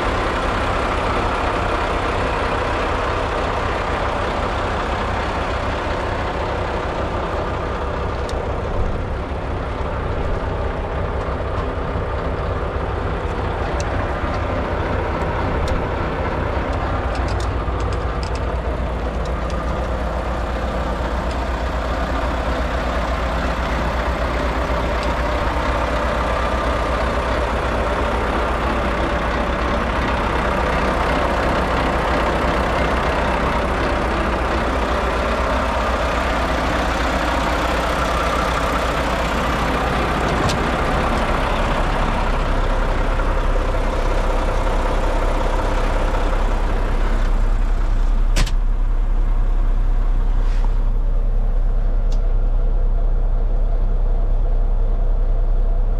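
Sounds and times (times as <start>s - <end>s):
diesel truck engine idling: 0.0s - 55.9s
faint clicks: 16.7s - 20.0s.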